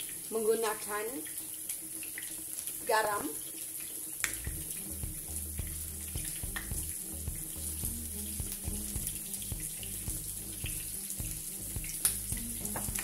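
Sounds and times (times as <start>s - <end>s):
fish fillets sizzling in a pan: 0.0s - 13.0s
low hum: 4.4s - 13.0s.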